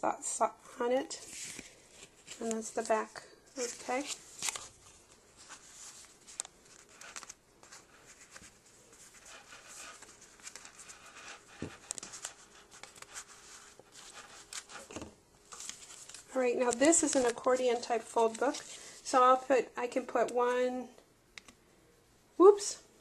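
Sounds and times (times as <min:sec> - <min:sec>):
paper pages rustling and clicking: 0:01.3 - 0:18.9.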